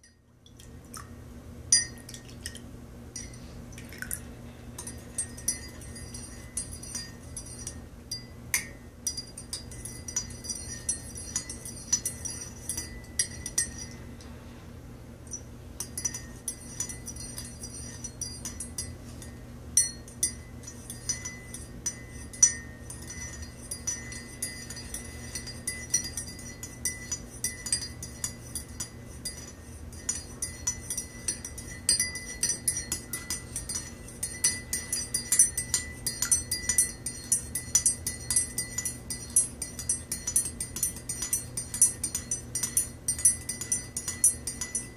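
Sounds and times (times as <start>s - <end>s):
steady low hum: 0.0s - 44.9s
teaspoon clinking in a mug: 1.7s - 2.3s, 4.8s - 14.0s, 15.3s - 44.9s.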